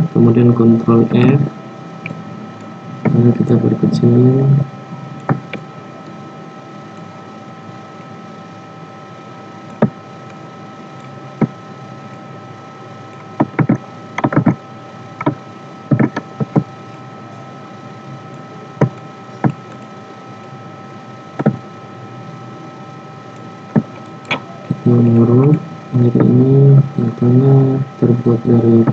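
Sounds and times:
electrical hum: 0:00.0 - 0:28.9
faint constant tone: 0:00.0 - 0:28.9
computer mouse clicks: 0:05.2 - 0:05.6, 0:13.1 - 0:14.6, 0:15.2 - 0:16.7, 0:18.3 - 0:19.9
keyboard key presses: 0:13.4 - 0:14.6, 0:15.2 - 0:16.7.

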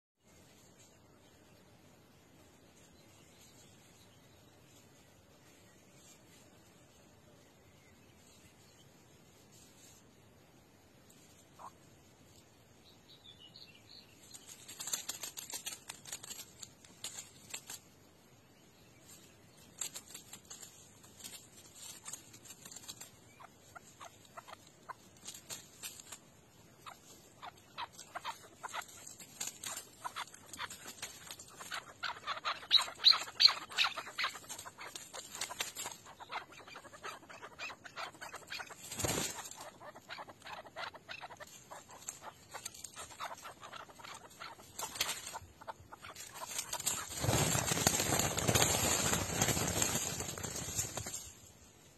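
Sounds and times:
partridges clucking calls: 0:11.4 - 0:11.8, 0:21.3 - 0:48.8.

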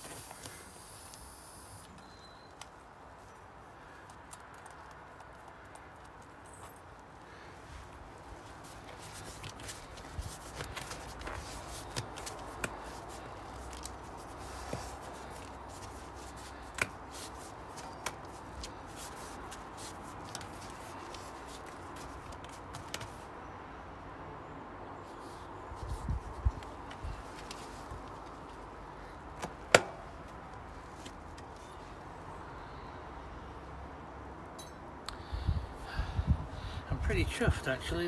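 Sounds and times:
rubber tyre rubbing: 0:07.7 - 0:23.3.

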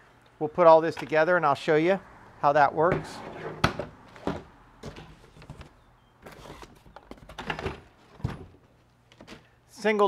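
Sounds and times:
cardboard scraping and rustling: 0:03.0 - 0:08.5.

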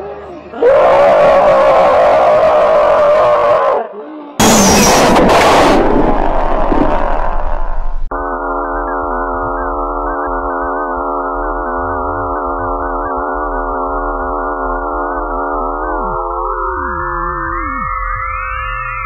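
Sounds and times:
low hum: 0:04.4 - 0:17.4
electronic drone of pure tones: 0:04.4 - 0:19.0.

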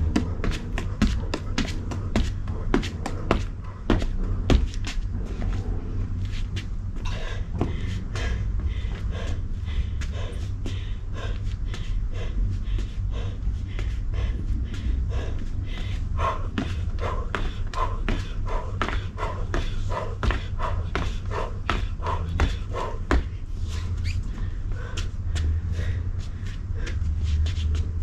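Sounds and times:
feet thudding on wooden deck: 0:00.0 - 0:05.6, 0:12.8 - 0:23.4.

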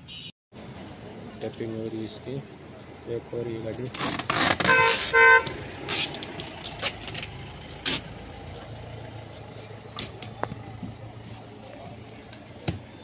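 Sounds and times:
packing tape pulled off roll: 0:03.9 - 0:05.1
short horn toots: 0:04.6 - 0:05.5.

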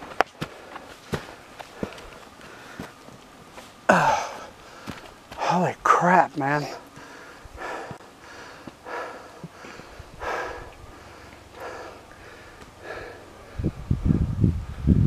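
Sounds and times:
person breathing hard: 0:00.4 - 0:03.0, 0:03.9 - 0:05.6, 0:06.6 - 0:14.0.

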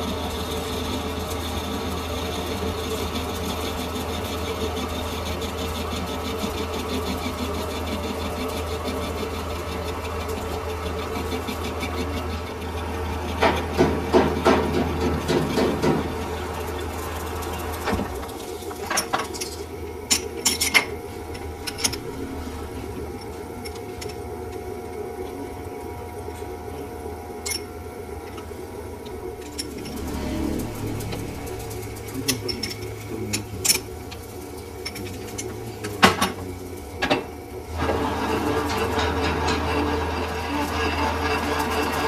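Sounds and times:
rough machining noise: 0:00.0 - 0:24.6, 0:28.4 - 0:36.0
lathe humming: 0:20.7 - 0:24.6, 0:28.5 - 0:34.8.

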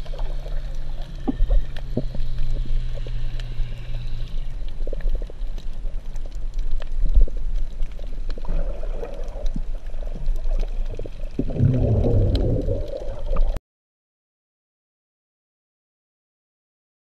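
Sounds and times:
muffled underwater rumble: 0:00.0 - 0:13.6
small clicks and crackles: 0:00.0 - 0:13.6
water gurgling and rushing: 0:04.8 - 0:13.6.

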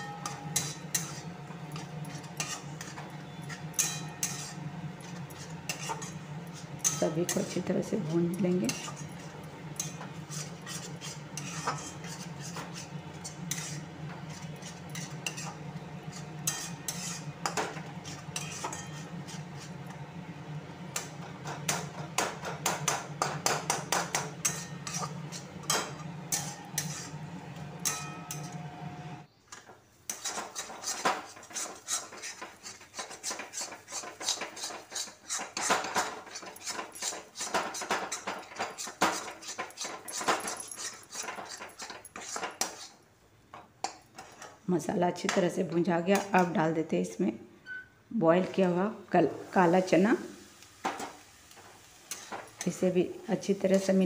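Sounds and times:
metal spatula scraping pan: 0:00.0 - 0:28.6, 0:30.1 - 0:43.0, 0:43.8 - 0:44.6, 0:52.1 - 0:52.9.

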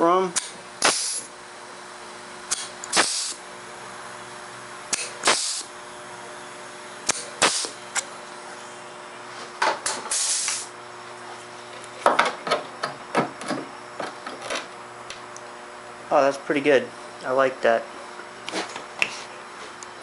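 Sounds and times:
brief hiss: 0:10.1 - 0:10.7.

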